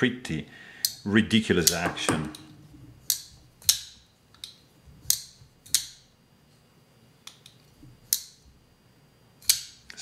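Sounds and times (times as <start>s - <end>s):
folding knife clicking open and shut: 3.0s - 6.0s, 9.4s - 9.8s.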